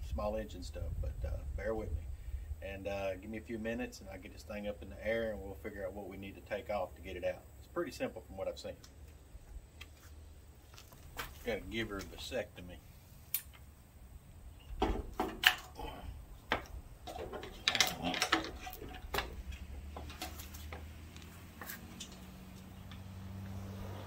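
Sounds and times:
metallic clanks of hand tools: 16.5 - 20.5.

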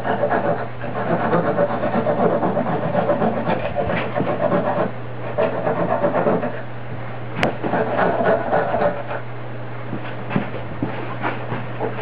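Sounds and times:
wood scraping against cutter: 0.0 - 6.6, 7.4 - 9.2.

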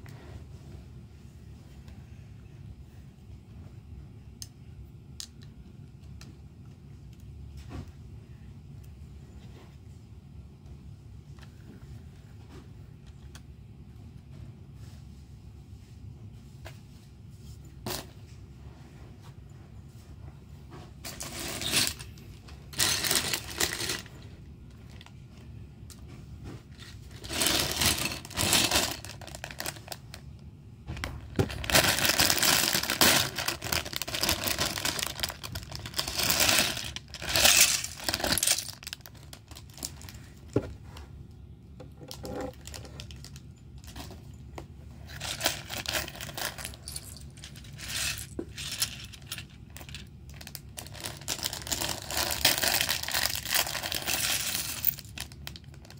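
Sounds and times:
plastic pieces clinking and rattling: 21.1 - 24.1, 26.8 - 30.1, 31.4 - 40.1, 45.0 - 55.9
plastic bag crinkling: 21.2 - 24.2, 26.7 - 30.3, 31.2 - 40.4, 45.0 - 55.9.

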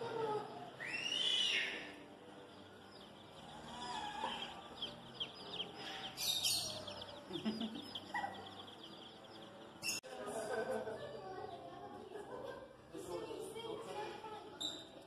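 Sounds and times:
shrill rising and falling cry: 0.0 - 2.0
baby chicks peeping: 0.0 - 10.0.

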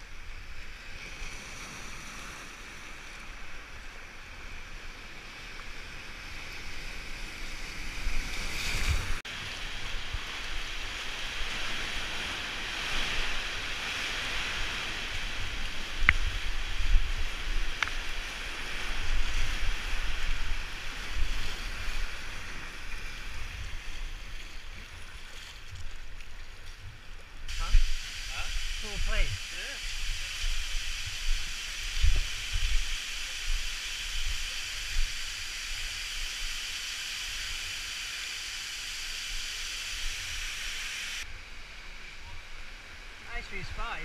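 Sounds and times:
wind buffeting microphone: 26.9 - 35.2.

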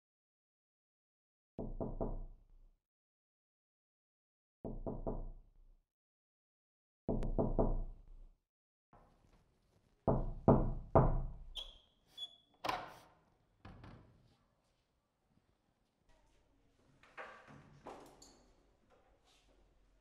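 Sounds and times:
knocking on wooden door: 10.1 - 11.2
short high squeak: 11.6 - 12.6.

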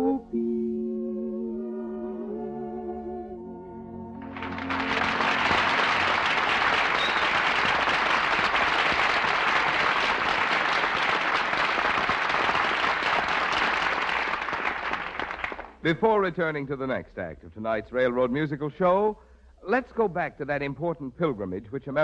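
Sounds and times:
audience applauding: 4.2 - 15.8.

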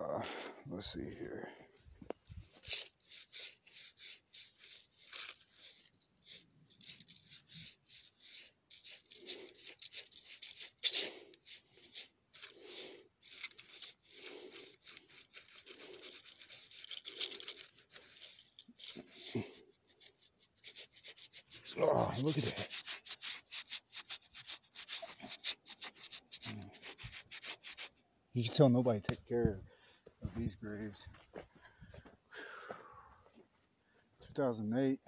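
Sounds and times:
phone microphone rubbing on fabric: 17.8 - 28.0.

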